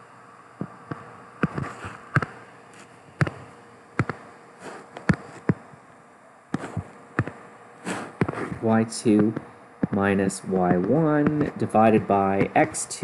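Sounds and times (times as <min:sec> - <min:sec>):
stylus tapping on a screen: 0:00.9 - 0:02.3, 0:03.2 - 0:03.4, 0:04.0 - 0:04.2, 0:09.2 - 0:10.0, 0:10.6 - 0:12.6
stylus scratching on a screen: 0:00.9 - 0:05.6, 0:06.6 - 0:12.9.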